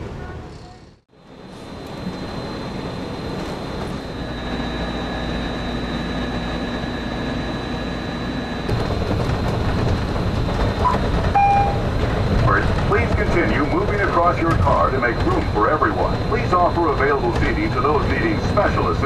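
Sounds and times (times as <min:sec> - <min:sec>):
low train rumble inside cabin: 0:00.0 - 0:19.0
monorail train electric hum: 0:00.0 - 0:19.0.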